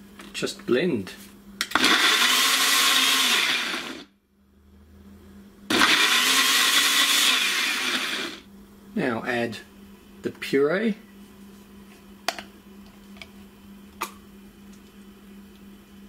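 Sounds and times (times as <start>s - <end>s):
blender running: 1.6s - 4.1s, 5.7s - 8.5s.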